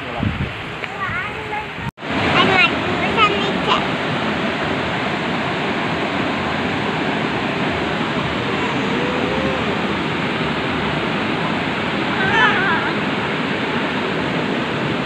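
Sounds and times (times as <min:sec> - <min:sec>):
waterfall rushing: 0:00.0 - 0:15.0
faint voice: 0:08.4 - 0:09.9, 0:12.1 - 0:13.0.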